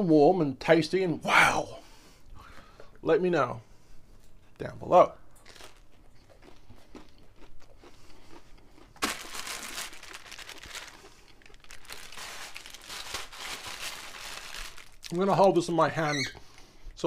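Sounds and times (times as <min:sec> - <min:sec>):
plastic satchel crinkling: 0:05.4 - 0:06.0, 0:09.0 - 0:15.5.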